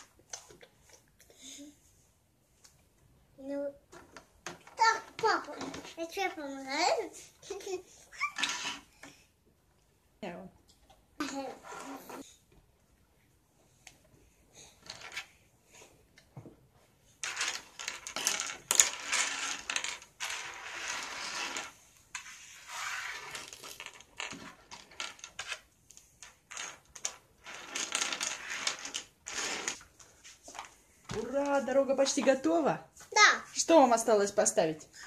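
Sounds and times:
plastic toy pieces rattling on table: 0:07.5 - 0:09.0, 0:17.2 - 0:32.3.

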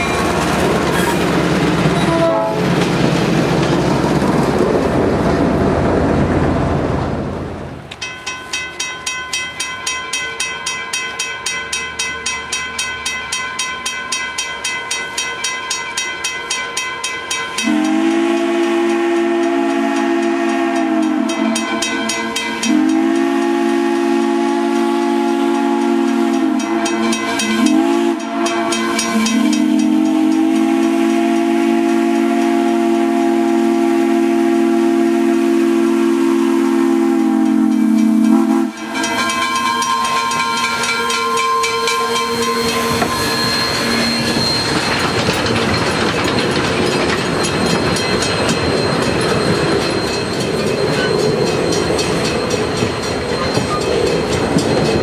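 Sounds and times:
diesel locomotive rumbling past: 0:00.0 - 0:08.5, 0:17.2 - 0:55.0
steam locomotive exhaust beating: 0:00.0 - 0:55.0
steam whistle: 0:02.0 - 0:02.6, 0:17.6 - 0:21.9, 0:22.6 - 0:44.8.

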